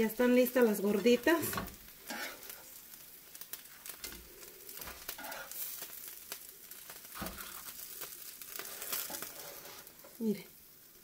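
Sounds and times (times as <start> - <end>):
food sizzling on a griddle: 0.0 - 11.0.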